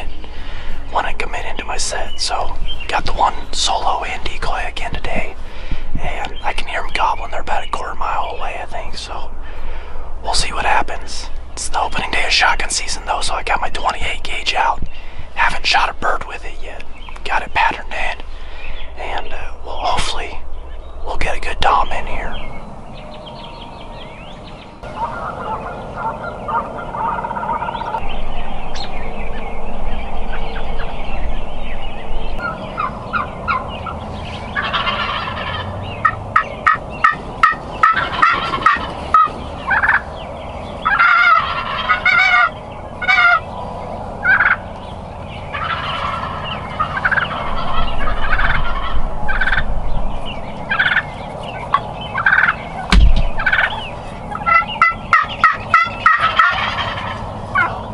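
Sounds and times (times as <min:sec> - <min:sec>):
turkeys gobbling: 0:24.8 - 0:28.0, 0:32.4 - 0:49.7, 0:50.6 - 0:57.9
short sharp turkey calls: 0:40.8 - 0:43.4, 0:45.5 - 0:49.6, 0:52.2 - 0:57.8
low thump: 0:52.9 - 0:53.6.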